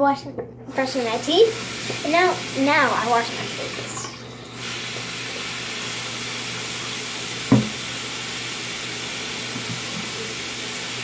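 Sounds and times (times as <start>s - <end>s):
faucet water running: 0.7s - 11.0s
knock: 7.5s - 7.8s.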